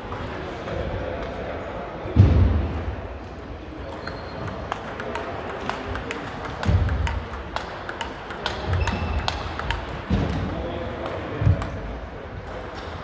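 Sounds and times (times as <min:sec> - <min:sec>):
table tennis ball clicking: 0:03.9 - 0:10.1.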